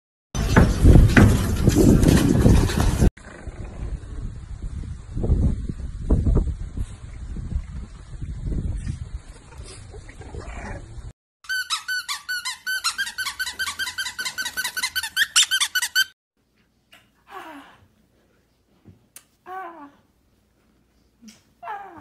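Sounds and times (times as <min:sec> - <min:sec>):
wind noise on microphone: 0:00.4 - 0:11.1
high-pitched squeaks: 0:11.4 - 0:16.2.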